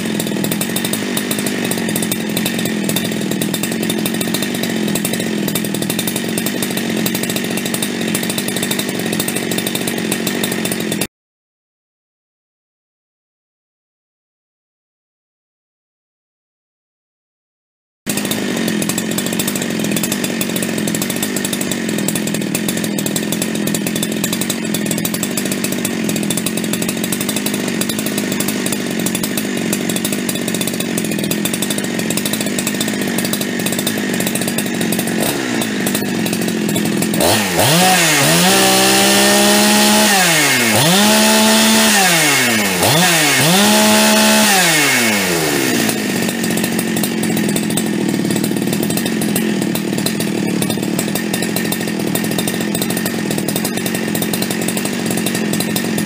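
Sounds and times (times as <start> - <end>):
chainsaw idling and revving: 0.0 - 11.1, 18.1 - 56.0.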